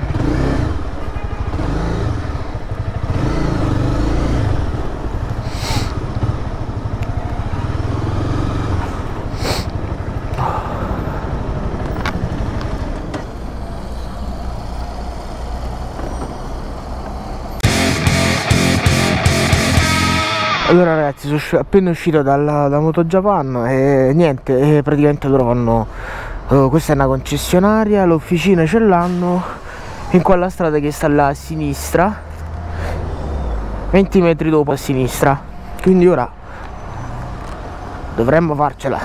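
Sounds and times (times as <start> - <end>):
motorcycle engine at low revs: 0.0 - 13.4.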